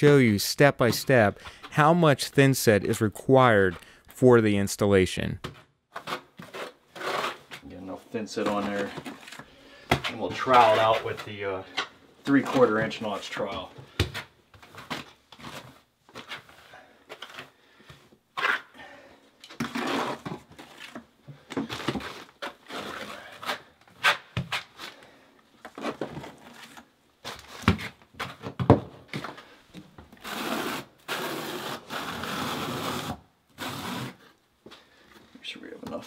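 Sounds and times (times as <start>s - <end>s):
trowel scraping wet mortar: 6.0s - 7.6s, 19.6s - 20.3s.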